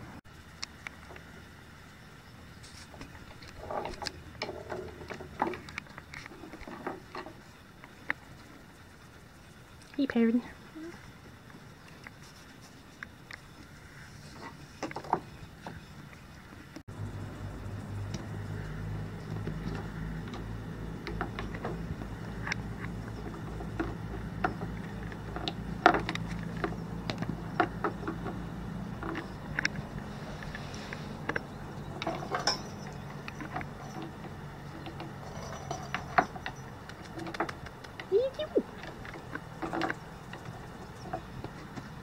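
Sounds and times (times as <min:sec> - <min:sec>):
low hum: 0:13.4 - 0:36.8
kitten paws tapping and scratching: 0:36.2 - 0:42.0.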